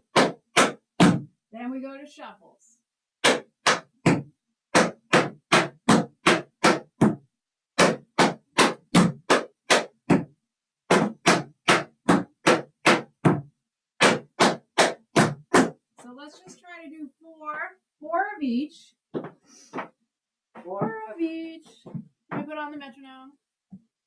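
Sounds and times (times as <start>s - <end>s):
tap shoes on wooden board: 0.0s - 1.3s, 3.2s - 7.2s, 7.8s - 10.3s, 10.9s - 15.8s, 19.1s - 20.0s, 20.6s - 22.7s.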